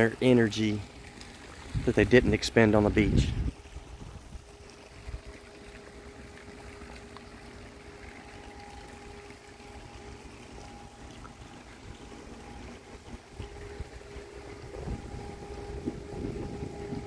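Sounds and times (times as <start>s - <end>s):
faint steady hum: 0.0s - 17.0s
wind buffeting microphone: 1.6s - 5.4s, 12.4s - 17.0s.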